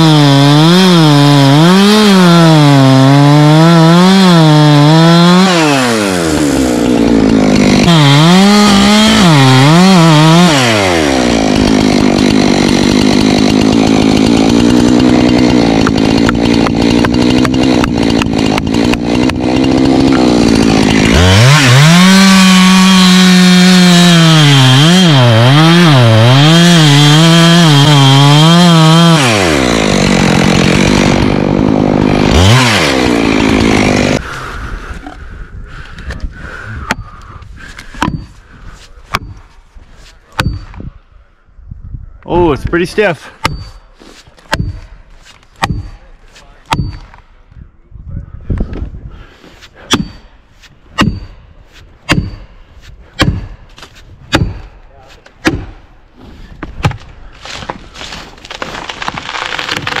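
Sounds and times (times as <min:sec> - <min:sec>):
chainsaw running at full throttle: 0:00.0 - 0:34.4, 0:57.4 - 1:00.0
tree cracking and falling: 0:04.9 - 0:34.2, 0:56.8 - 1:00.0
wedges struck with sharp knocks: 0:44.4 - 0:47.2, 0:49.8 - 0:50.3, 0:50.9 - 0:51.4, 0:52.0 - 0:52.5, 0:53.2 - 0:55.8, 0:56.6 - 0:57.8
sharp blows on plastic wedges: 0:49.6 - 0:55.8.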